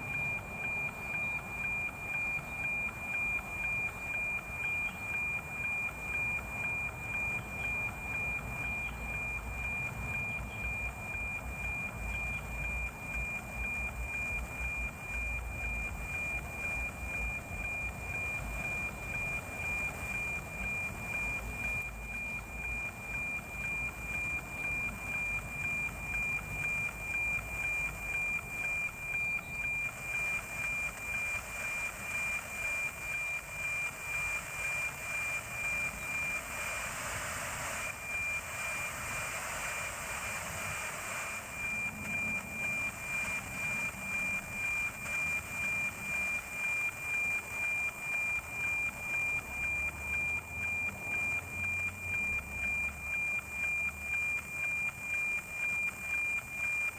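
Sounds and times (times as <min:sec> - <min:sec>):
pulsing satellite signal whistle: 0:00.0 - 0:56.9.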